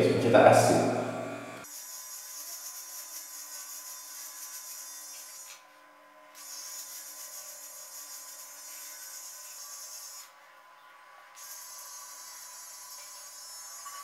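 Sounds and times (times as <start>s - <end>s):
trimmer buzzing: 6.3s - 10.4s, 11.3s - 14.0s.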